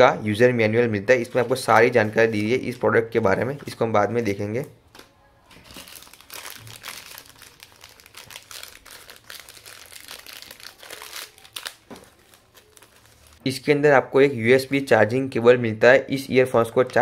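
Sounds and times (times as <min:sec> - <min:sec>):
pouch crinkling: 0:05.6 - 0:13.4.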